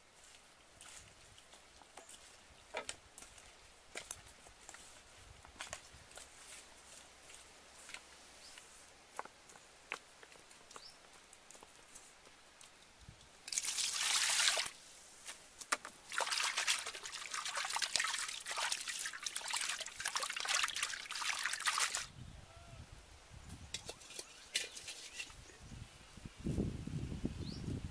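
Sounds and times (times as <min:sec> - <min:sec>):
water poured into metal wok: 0:13.5 - 0:14.7, 0:16.1 - 0:22.1
hand scrubbing wok in water: 0:16.1 - 0:22.1.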